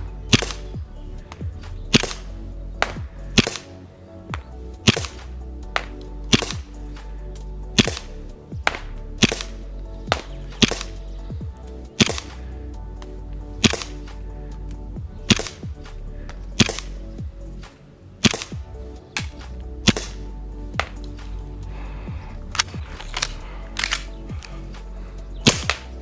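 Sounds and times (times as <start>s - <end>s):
airsoft pistol shots: 1.9s - 2.2s, 2.8s - 3.7s, 4.8s - 5.2s, 5.8s - 6.7s, 7.8s - 8.1s, 8.7s - 11.0s, 12.0s - 12.3s, 13.6s - 14.0s, 15.3s - 15.6s, 16.6s - 16.9s, 18.2s - 18.6s, 19.2s - 20.2s, 25.4s - 25.8s.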